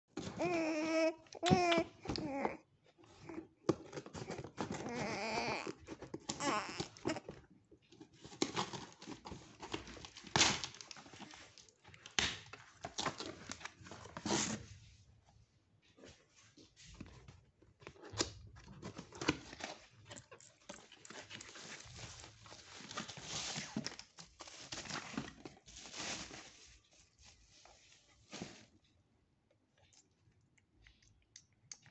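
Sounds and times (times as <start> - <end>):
plastic packaging crinkling: 8.0 - 14.6, 18.7 - 27.0.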